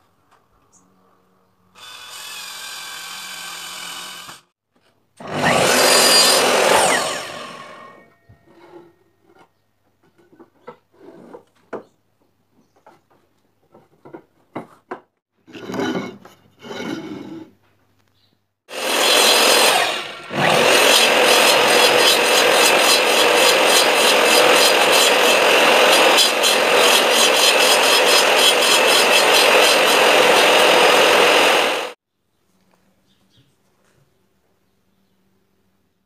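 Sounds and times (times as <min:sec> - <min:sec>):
miter saw cutting wood: 0:01.8 - 0:04.5, 0:05.2 - 0:08.0, 0:18.7 - 0:32.0
wood rubbing and knocking: 0:20.4 - 0:31.4.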